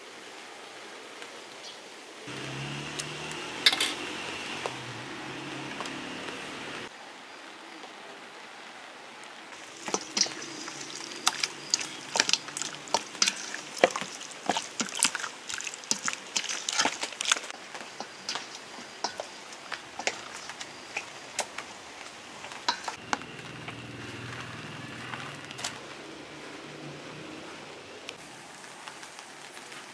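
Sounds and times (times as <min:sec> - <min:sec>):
hand squelching chicken in marinade: 0:09.6 - 0:21.5.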